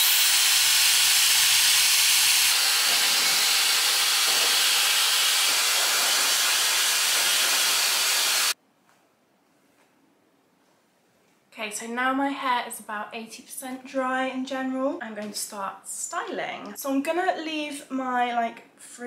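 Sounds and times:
hairdryer blowing air: 0:00.0 - 0:08.6.

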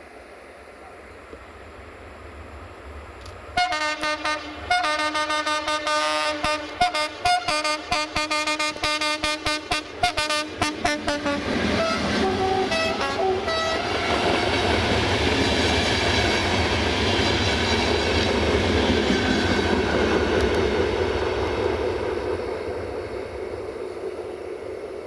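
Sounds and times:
train wheels rumbling on rails: 0:01.2 - 0:25.0
train horn toots: 0:03.6 - 0:14.7.

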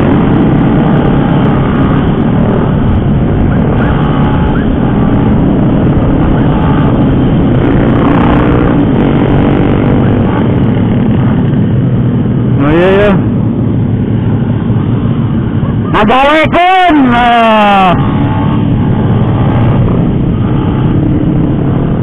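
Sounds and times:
wind noise on microphone: 0:00.0 - 0:16.6, 0:17.5 - 0:22.0
motorcycle engine running: 0:00.0 - 0:22.0.

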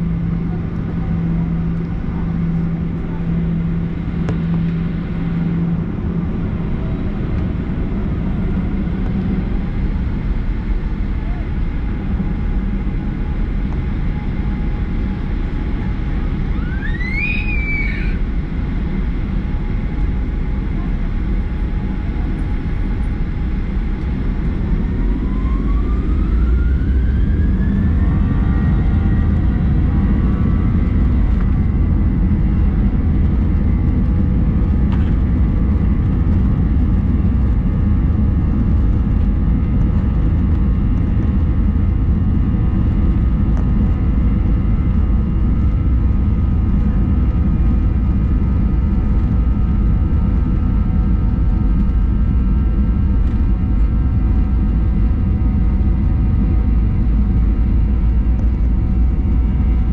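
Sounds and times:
jet engine whine: 0:00.0 - 0:59.9
loud low engine rumble: 0:00.0 - 0:59.9.

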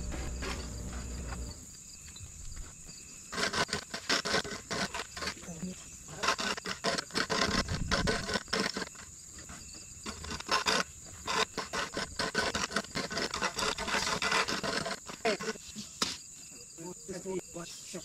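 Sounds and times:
rough scraping and scratching: 0:00.0 - 0:01.6, 0:02.4 - 0:16.3
high-pitched insect drone: 0:00.0 - 0:03.3.

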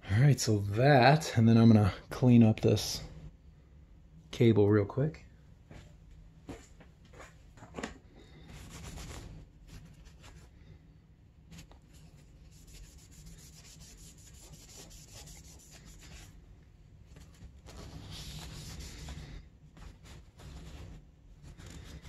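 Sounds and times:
rag rubbing on hose: 0:12.4 - 0:16.3.

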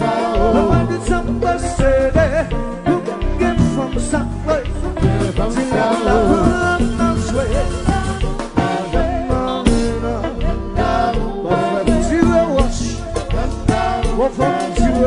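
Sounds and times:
band playing dance beat: 0:00.0 - 0:15.0
man singing into microphone: 0:00.0 - 0:15.0.

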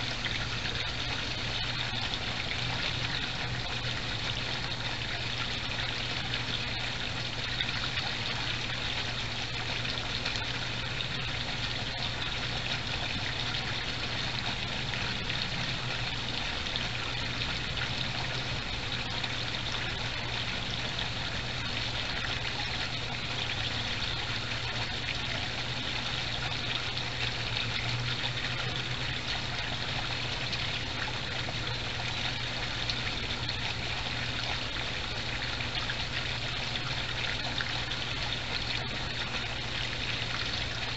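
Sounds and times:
low steady hum: 0:00.0 - 0:40.9
water trickling in a pond: 0:00.0 - 0:40.9.

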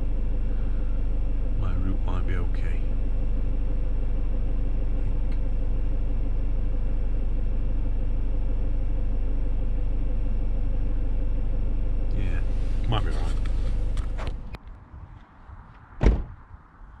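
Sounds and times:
van engine running: 0:00.0 - 0:14.6.

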